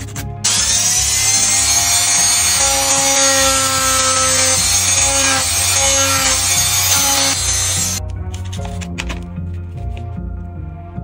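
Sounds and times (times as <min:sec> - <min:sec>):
tool hissing on wood: 0:00.5 - 0:08.0
background music of held notes: 0:08.0 - 0:11.0.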